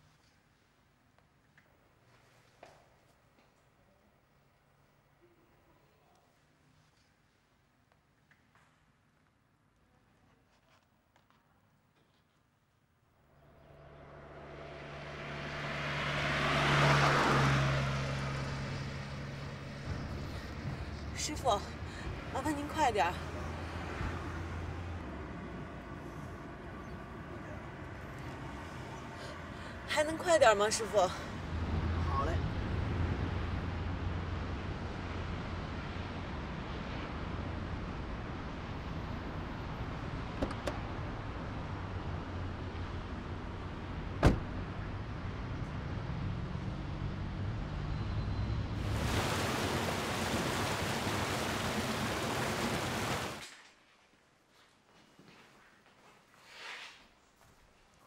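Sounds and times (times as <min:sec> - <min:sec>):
car driving past: 0:13.3 - 0:22.4
road traffic noise: 0:13.3 - 0:53.4.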